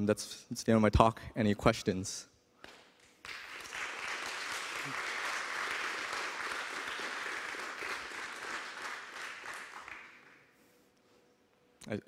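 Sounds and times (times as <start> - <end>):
audience applauding: 3.2 - 10.5.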